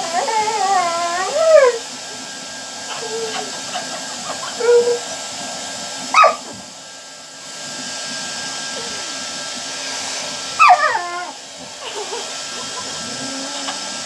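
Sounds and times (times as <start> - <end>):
puppy whining and yipping: 0.0 - 1.8, 2.9 - 5.1, 6.1 - 6.5, 10.6 - 13.9
hair dryer blowing: 0.0 - 14.0.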